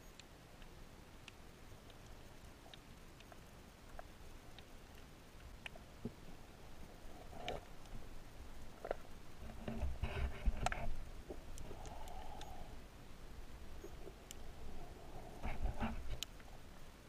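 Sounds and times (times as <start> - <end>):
muffled underwater clicks and knocks: 8.8 - 12.5, 15.4 - 16.5.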